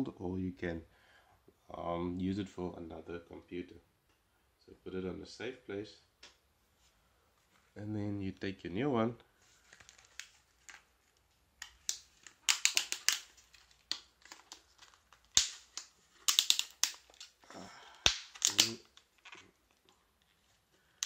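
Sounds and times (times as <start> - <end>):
packaging crackling and clicking: 9.7 - 17.4, 18.0 - 20.0.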